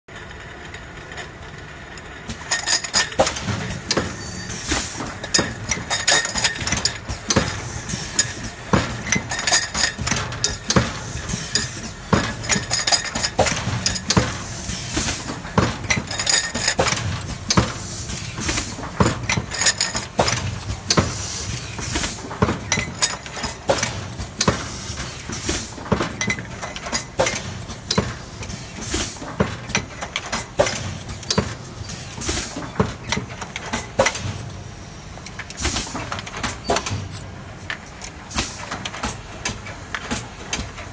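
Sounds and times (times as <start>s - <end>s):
machine clattering metallic clinks: 5.2s - 14.3s, 15.8s - 17.6s, 18.4s - 20.6s.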